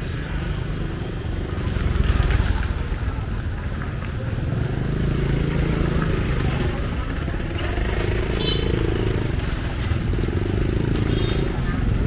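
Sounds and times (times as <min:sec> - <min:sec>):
traffic engines running: 0:00.0 - 0:12.0
voices in background: 0:00.5 - 0:12.0.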